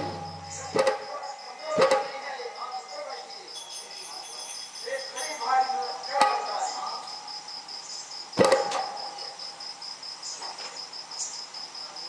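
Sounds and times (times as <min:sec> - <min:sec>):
metal chair knocking on wooden floor: 0:00.0 - 0:01.0
fast-pulsing high chirp: 0:00.0 - 0:01.8.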